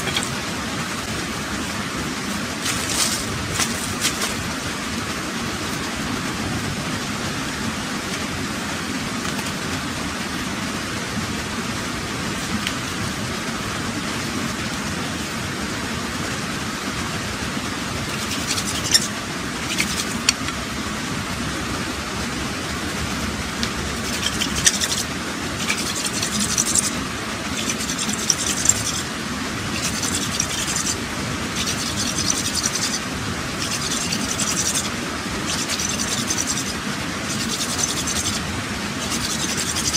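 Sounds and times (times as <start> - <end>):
stick scraping by hand: 0.0 - 0.4, 2.3 - 4.4, 18.1 - 20.6, 24.0 - 39.9
rushing background noise: 0.0 - 39.9.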